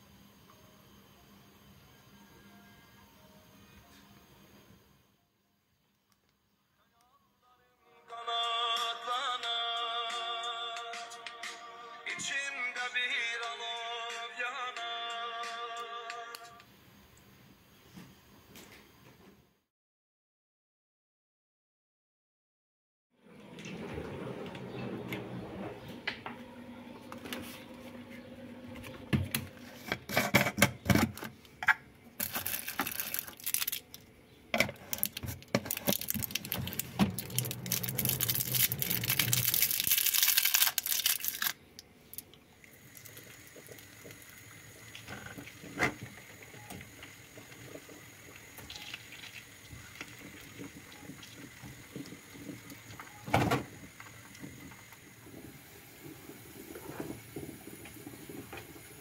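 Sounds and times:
plastic candy wrappers crinkling: 0:32.2 - 0:34.1, 0:34.7 - 0:41.6.

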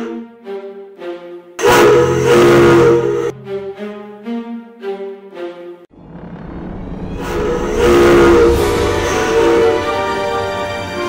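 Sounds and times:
steam whistle chord: 0:01.6 - 0:03.4, 0:06.0 - 0:11.0.

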